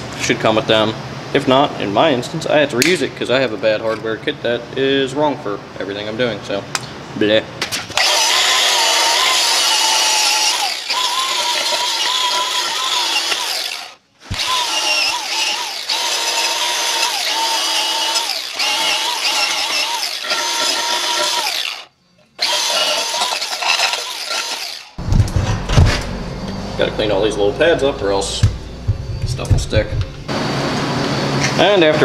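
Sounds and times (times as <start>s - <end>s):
power grinder whining and scraping: 7.9s - 25.0s.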